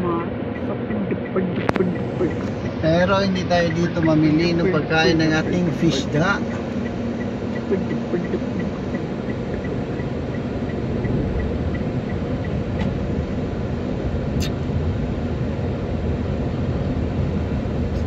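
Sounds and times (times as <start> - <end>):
car engine and road noise: 0.0 - 18.0
light ticking: 6.0 - 13.0.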